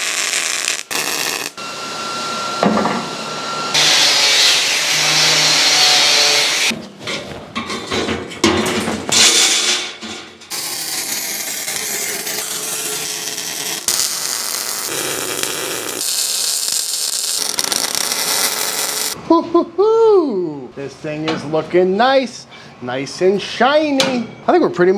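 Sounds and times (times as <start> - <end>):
arc welder hissing: 0.0 - 1.6, 10.5 - 19.2.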